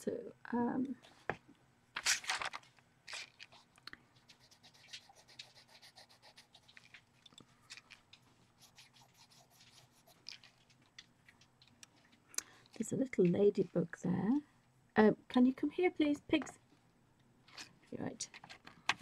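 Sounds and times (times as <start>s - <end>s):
pencil scratching on paper: 4.2s - 6.9s, 8.6s - 10.4s.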